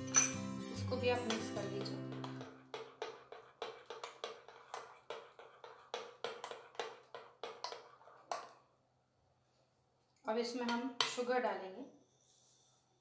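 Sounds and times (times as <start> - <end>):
spoon clinking against glass bowl: 0.0 - 0.5, 1.1 - 2.5
spoon stirring batter: 0.1 - 8.8.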